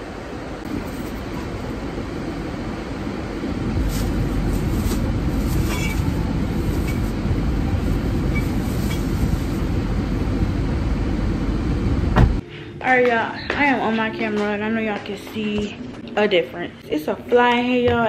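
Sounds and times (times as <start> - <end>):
car air conditioning blowing: 0.0 - 12.5.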